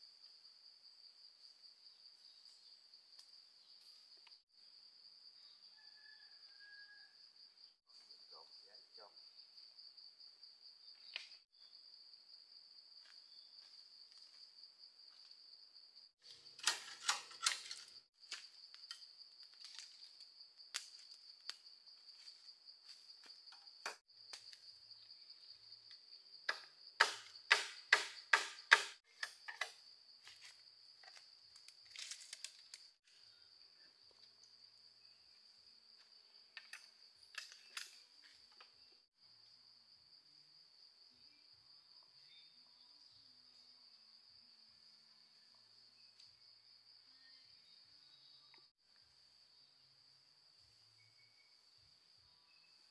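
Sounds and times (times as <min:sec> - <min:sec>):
insects droning: 0:00.0 - 0:52.9
sharp knocks: 0:26.5 - 0:29.0.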